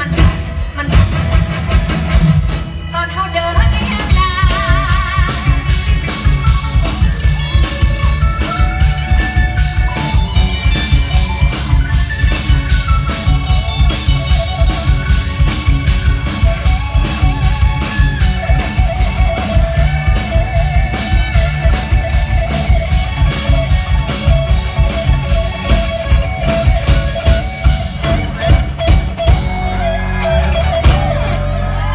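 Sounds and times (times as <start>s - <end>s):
bass guitar: 0.0s - 31.9s
drum kit beat: 0.0s - 31.9s
electric guitar: 0.0s - 31.9s
woman singing: 2.9s - 5.9s.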